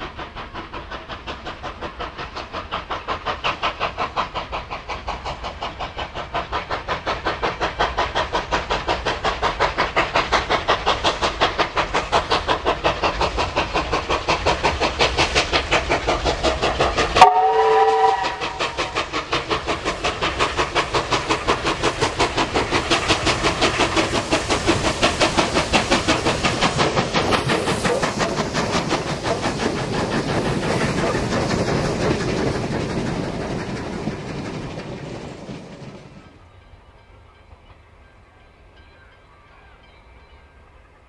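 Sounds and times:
steam locomotive exhaust beats: 0.0s - 41.0s
steam whistle blast: 17.2s - 18.8s.

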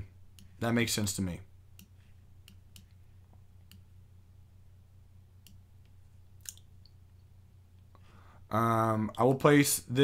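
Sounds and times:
low steady hum: 0.0s - 10.0s
computer mouse clicks: 1.8s - 3.0s.

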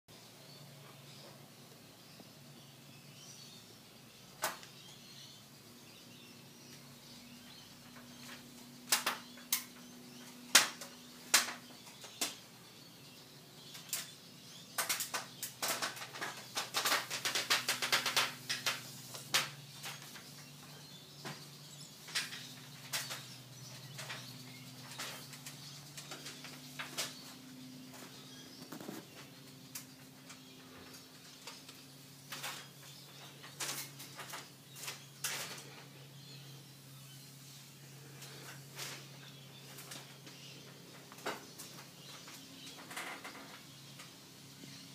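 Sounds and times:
sharp clicks and crackles: 7.9s - 12.4s, 13.7s - 14.1s, 14.7s - 20.5s, 22.0s - 27.3s, 31.4s - 35.8s.

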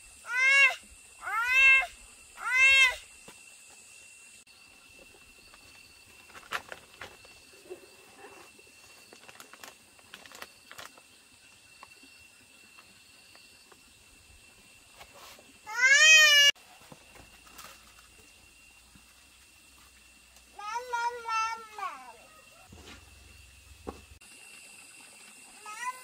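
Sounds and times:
plastic rustling: 8.9s - 11.0s.

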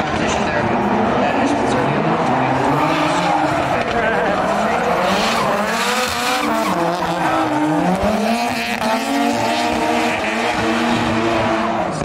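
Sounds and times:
car engine revving: 0.0s - 12.0s
tyre squeal and skidding: 4.5s - 10.8s.

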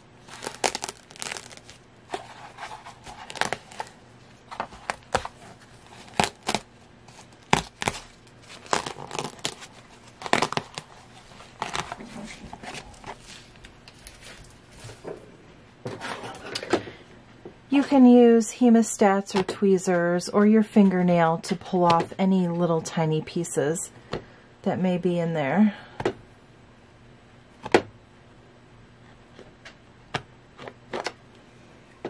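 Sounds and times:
film crinkling and tearing: 0.2s - 4.0s, 4.6s - 15.0s.

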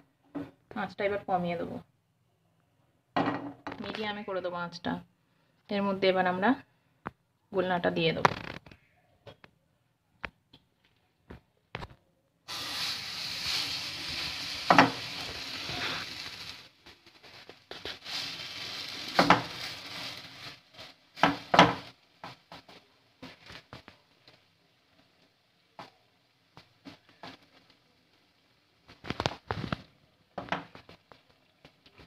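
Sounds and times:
batter sizzling in oil: 12.5s - 32.0s.

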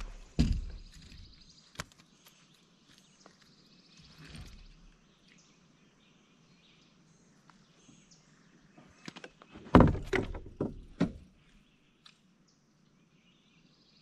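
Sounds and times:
knocks and thumps: 0.0s - 1.3s, 9.6s - 11.2s.

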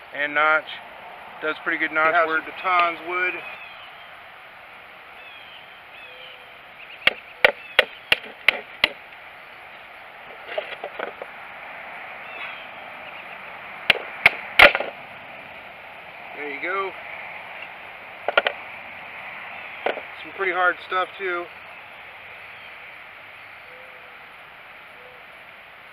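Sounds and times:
stick splitting: 7.0s - 9.0s, 13.9s - 15.0s.

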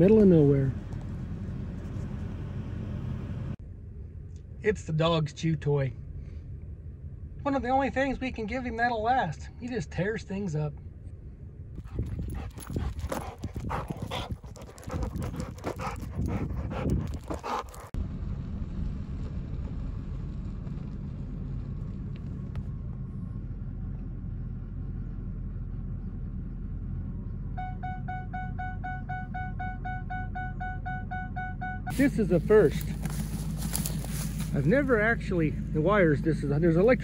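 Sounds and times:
pickup truck rumbling: 0.0s - 3.9s, 11.5s - 37.0s
dog panting: 11.8s - 18.0s.

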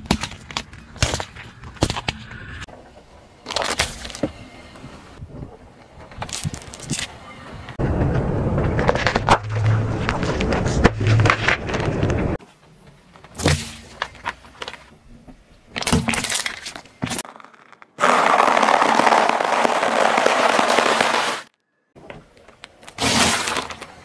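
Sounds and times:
candies crackling under tyre: 16.2s - 21.5s
drink pouch bursting: 17.2s - 21.5s.

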